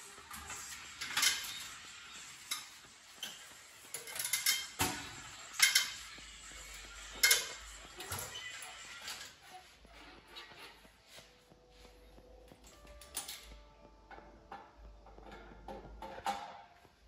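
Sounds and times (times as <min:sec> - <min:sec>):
metallic clanks and clinks: 0:00.3 - 0:09.4, 0:12.6 - 0:16.7.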